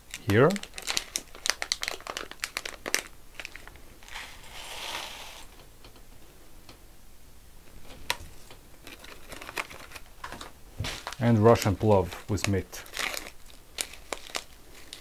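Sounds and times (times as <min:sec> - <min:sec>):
foil pouch crinkling: 0:00.1 - 0:05.5, 0:08.8 - 0:15.0.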